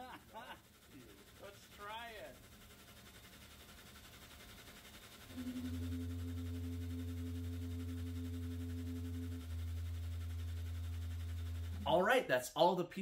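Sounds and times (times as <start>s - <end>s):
organ pipe low note: 5.3s - 12.4s.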